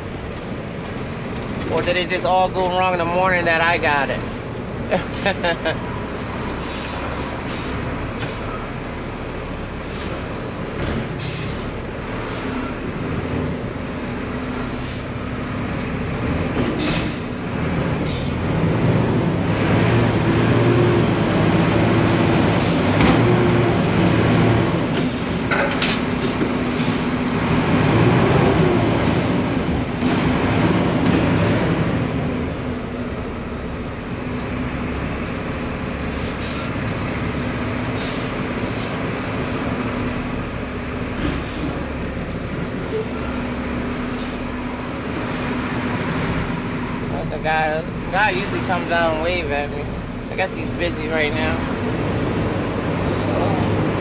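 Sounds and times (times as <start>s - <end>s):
garbage truck diesel engine revving: 0.0s - 54.0s
metal knocks and clanks: 25.0s - 26.6s.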